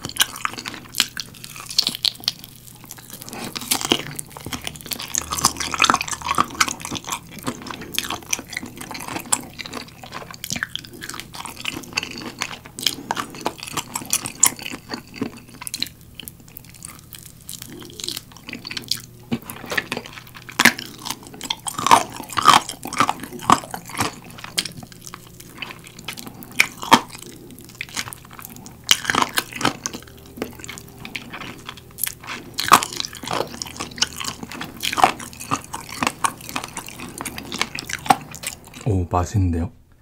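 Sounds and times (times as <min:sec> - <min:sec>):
person chewing and biting: 0:00.0 - 0:38.9.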